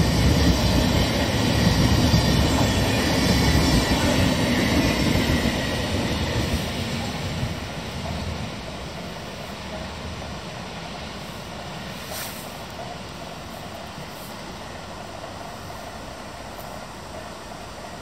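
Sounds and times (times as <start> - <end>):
steady noisy hiss: 0.0 - 18.0
train rumble: 0.0 - 18.0
brief hiss: 11.2 - 12.8.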